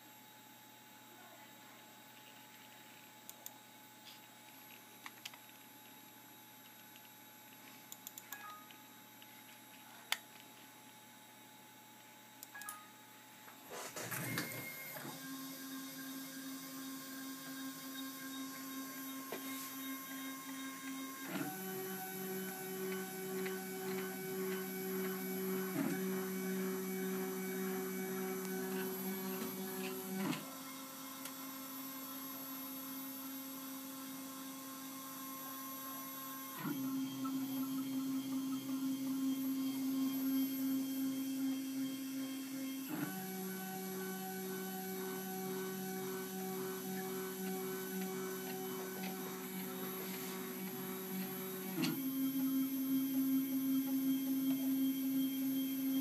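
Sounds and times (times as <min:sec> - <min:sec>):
stepper motors humming and whining: 0:14.0 - 0:56.0.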